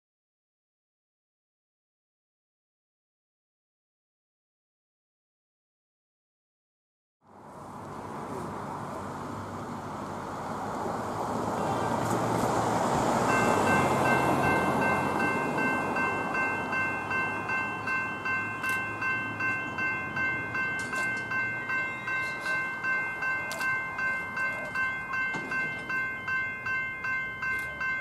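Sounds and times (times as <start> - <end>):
passing train: 7.2 - 28.0
level crossing bells ringing: 13.2 - 28.0.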